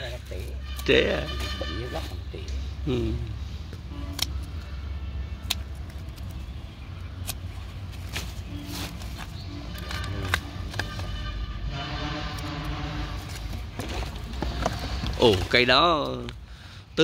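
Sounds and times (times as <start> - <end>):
scissors snipping stalks: 4.1 - 4.7, 5.4 - 6.4, 7.2 - 8.3.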